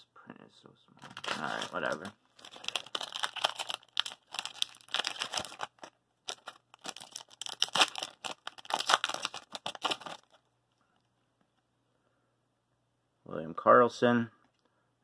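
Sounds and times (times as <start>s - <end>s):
foil wrapper crinkling and tearing: 1.0s - 10.4s.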